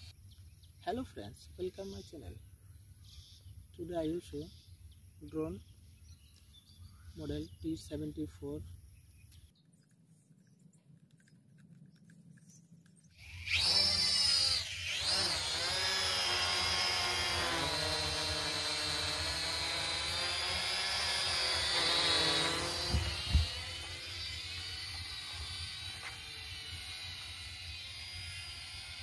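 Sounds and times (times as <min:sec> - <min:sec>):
toy drone motors whining: 0:13.1 - 0:29.0.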